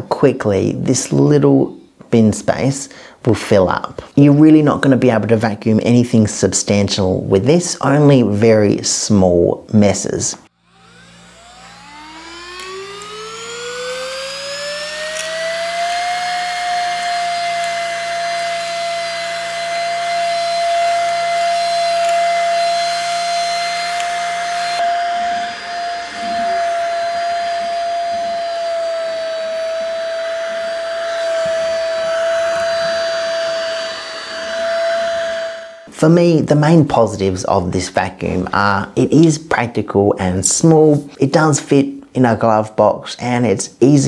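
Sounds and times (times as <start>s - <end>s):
vacuum motor whine: 10.5s - 35.9s.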